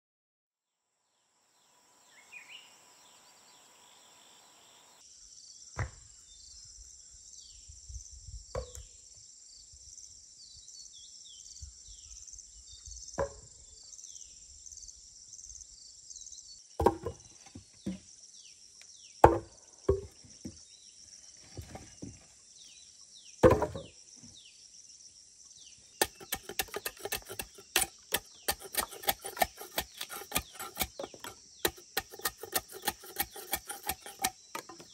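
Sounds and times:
high insect drone: 0:01.5 - 0:05.7
bird chirps: 0:02.0 - 0:05.0
machete chopping a log: 0:16.8 - 0:17.2, 0:19.2 - 0:20.1, 0:23.4 - 0:23.9, 0:26.0 - 0:34.9.

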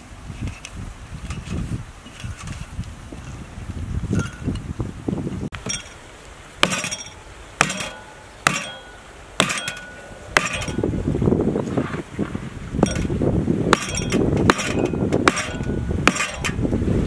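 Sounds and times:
cleaver chopping bone: 0:07.6 - 0:08.7, 0:09.4 - 0:10.7, 0:13.8 - 0:16.5.

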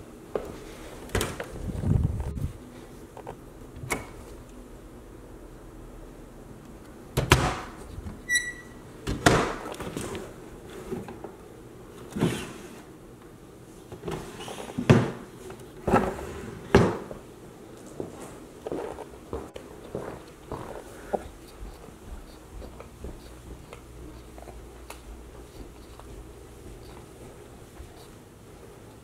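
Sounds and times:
brief high squeak: 0:08.3 - 0:08.8.

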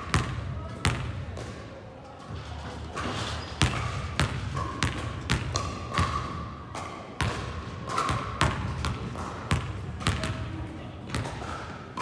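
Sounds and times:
basketball bouncing on floor: 0:00.1 - 0:01.1, 0:03.6 - 0:06.2, 0:07.2 - 0:10.3.

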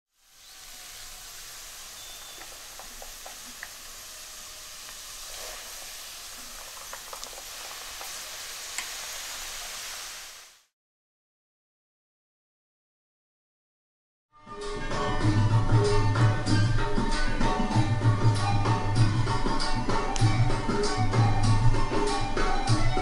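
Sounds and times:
dough deep-frying in oil: 0:00.1 - 0:10.7.

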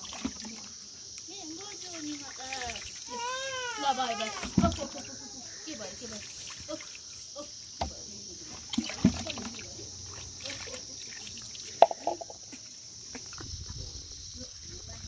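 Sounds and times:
high insect chirring: 0:00.0 - 0:15.0
water trickling and splashing: 0:00.0 - 0:15.0.

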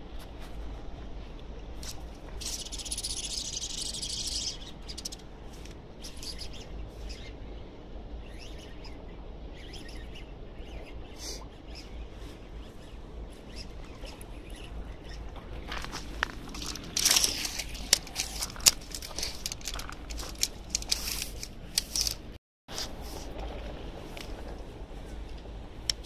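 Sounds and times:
fishing reel rapid clicking: 0:16.6 - 0:22.2.

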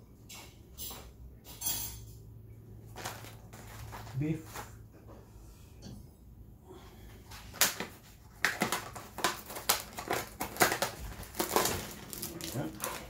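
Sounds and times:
knife cutting plastic film: 0:07.4 - 0:13.0.

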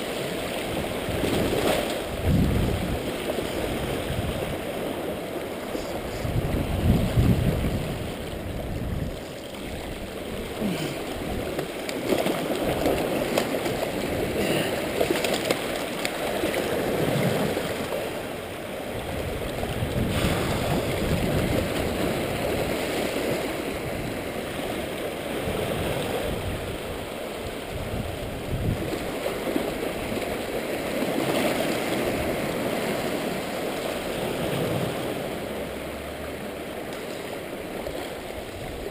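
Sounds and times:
sea waves washing over rocks: 0:00.0 - 0:38.9.

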